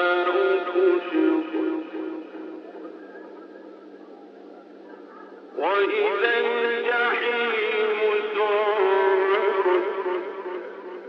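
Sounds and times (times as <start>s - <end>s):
man chanting melodically: 0.0s - 2.3s, 5.6s - 11.0s.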